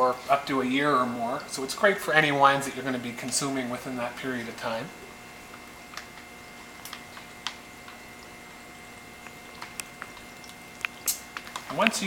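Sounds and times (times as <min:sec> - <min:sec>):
liquid flowing through a hose: 0:06.6 - 0:12.0
plastic bag crinkling: 0:09.1 - 0:12.0.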